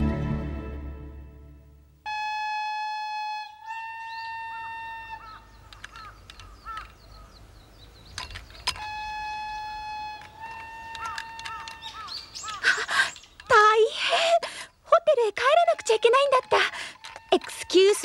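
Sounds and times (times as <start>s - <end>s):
flute-like notes: 2.0s - 5.4s, 8.7s - 12.0s
small birds chirping: 4.0s - 8.9s, 10.3s - 18.0s
sharp clicks: 5.7s - 7.2s, 10.2s - 13.7s.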